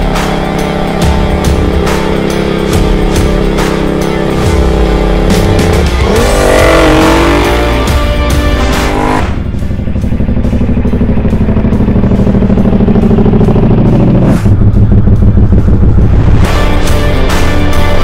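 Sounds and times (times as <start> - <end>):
electronic music: 0.0 - 18.0
low pulsing beat: 0.0 - 18.0
motorcycle engine revving: 0.0 - 18.0.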